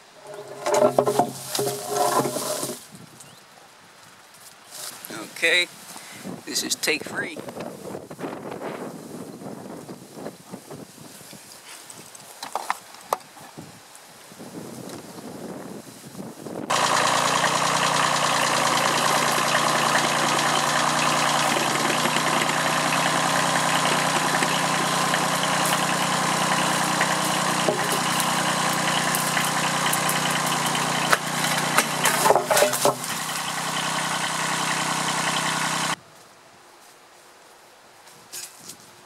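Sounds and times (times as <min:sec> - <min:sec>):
diesel tractor engine running: 0:00.0 - 0:02.8, 0:16.7 - 0:36.0
sharp knocks and clatter: 0:00.2 - 0:02.8, 0:16.7 - 0:35.5.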